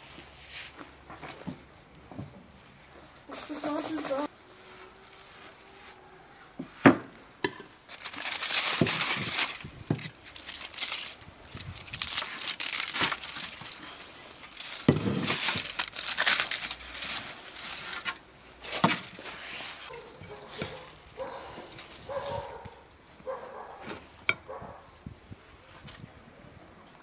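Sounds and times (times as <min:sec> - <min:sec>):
aluminium foil crinkling: 0:07.4 - 0:22.9.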